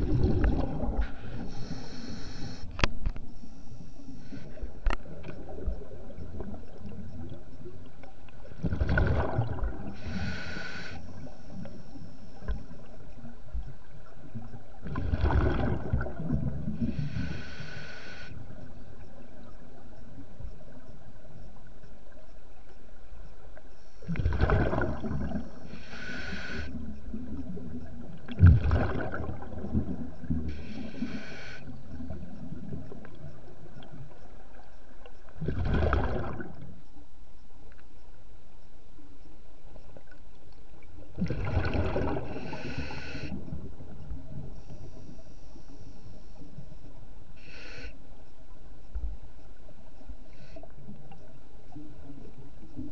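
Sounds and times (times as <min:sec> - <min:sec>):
steady underwater hiss: 0:00.0 - 0:52.9
diver breathing through regulator: 0:01.0 - 0:02.8, 0:09.9 - 0:11.3, 0:16.8 - 0:18.4, 0:25.6 - 0:26.8, 0:30.5 - 0:31.7, 0:42.2 - 0:43.4, 0:47.4 - 0:48.0.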